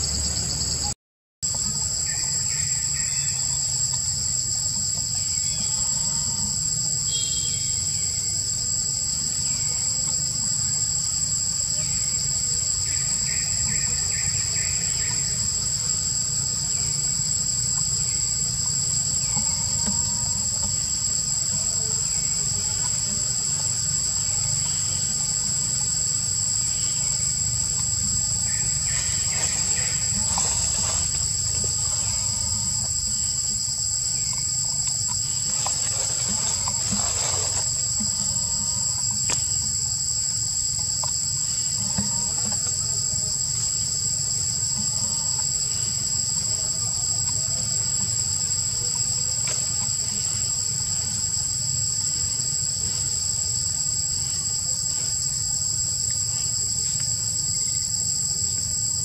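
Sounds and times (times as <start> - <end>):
faint chirps: 0.0 - 58.8
insects buzzing: 0.0 - 59.0
rustles: 17.8 - 39.9.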